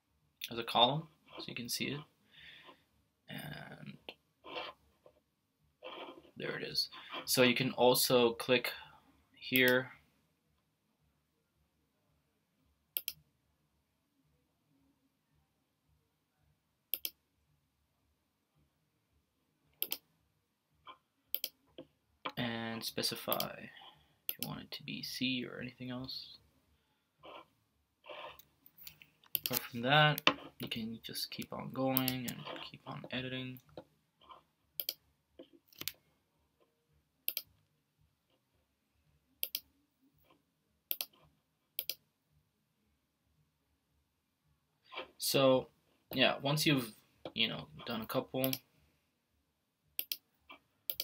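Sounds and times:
computer mouse clicking: 13.0s - 13.2s, 16.9s - 17.2s, 19.8s - 20.0s, 21.3s - 21.6s, 28.1s - 30.4s, 31.9s - 32.6s, 34.8s - 35.0s, 37.3s - 37.5s, 39.4s - 39.7s, 40.9s - 41.2s, 41.8s - 42.0s, 50.0s - 50.2s.

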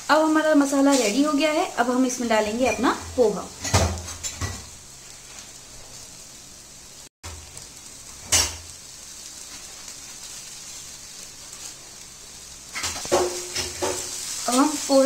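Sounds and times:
faint sizzle: 0.0s - 15.0s
strainer knocking against pan: 12.8s - 14.1s.

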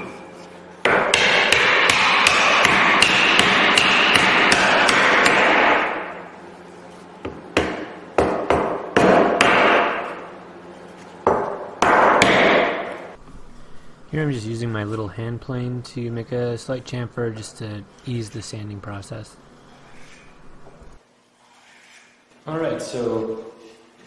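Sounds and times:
hammer striking wood: 0.8s - 6.1s, 7.2s - 10.2s, 11.2s - 13.2s.

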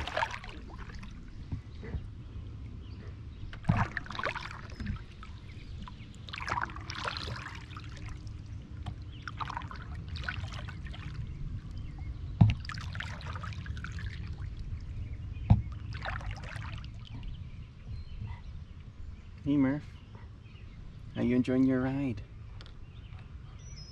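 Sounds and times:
paddle splashing in water: 0.0s - 2.0s, 3.6s - 11.4s, 12.4s - 14.6s, 15.6s - 17.2s
steady low rumble: 0.0s - 23.9s.

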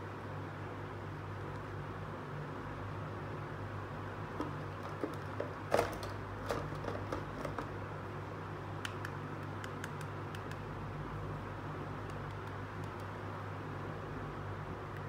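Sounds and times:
steady low hum: 0.0s - 15.0s
plastic toy clicks and knocks: 4.4s - 7.7s.

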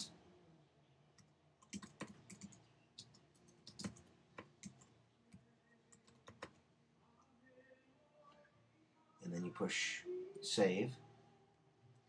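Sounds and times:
faint keyboard typing: 1.2s - 6.6s.

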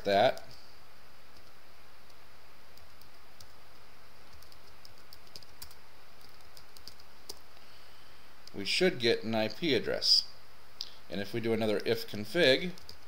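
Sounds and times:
faint hiss: 0.0s - 13.0s
computer keyboard typing: 1.4s - 1.6s, 2.8s - 3.6s, 4.2s - 7.4s, 12.7s - 13.0s.

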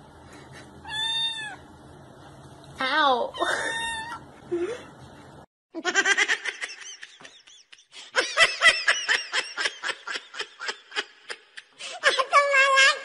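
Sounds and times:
person giggling: 3.4s - 3.9s, 4.5s - 4.9s.

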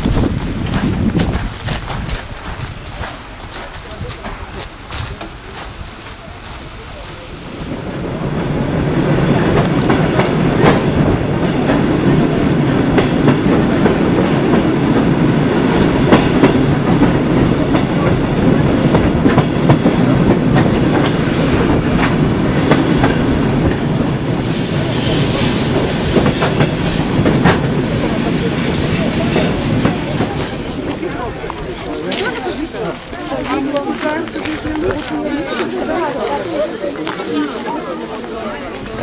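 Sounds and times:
rail joint clicks: 0.0s - 7.2s, 9.4s - 33.2s
train wheels rumbling on rails: 0.0s - 39.0s.

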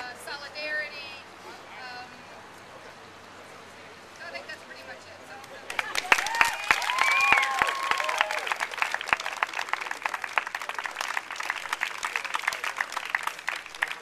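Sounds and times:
crowd applauding: 5.6s - 14.0s
voices cheering and whooping: 5.7s - 8.9s.

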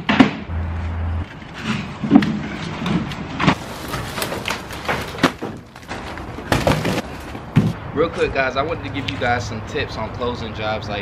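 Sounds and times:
wood dragged across metal truck bed: 0.7s - 7.7s
wood clattering onto pile: 1.6s - 7.8s.

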